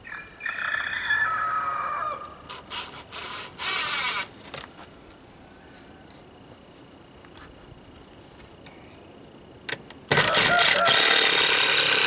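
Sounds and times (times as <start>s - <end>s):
rooster crowing: 0.0s - 2.4s, 10.1s - 11.5s
cordless drill bursts: 2.6s - 4.3s, 10.1s - 12.0s.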